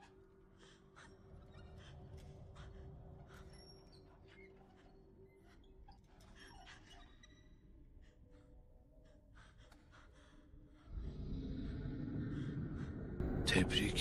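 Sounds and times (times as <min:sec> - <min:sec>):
low rumbling drone: 0:10.9 - 0:14.0.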